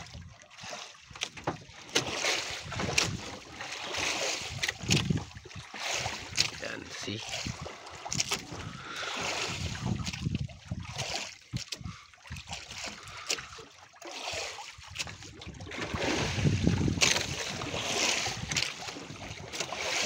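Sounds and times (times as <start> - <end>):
sea water slapping against boat: 0.0 - 20.0
wind buffeting microphone: 2.5 - 3.5, 4.4 - 6.4, 7.2 - 12.4, 14.9 - 19.6.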